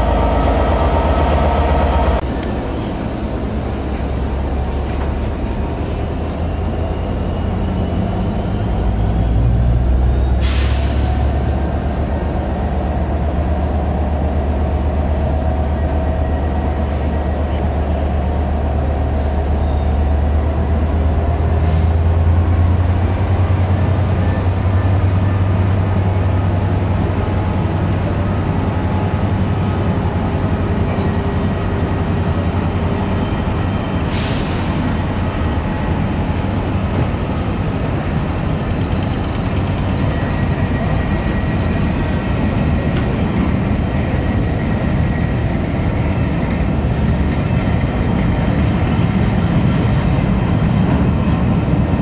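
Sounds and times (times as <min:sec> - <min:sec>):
train rumbling past: 0:00.0 - 0:52.0.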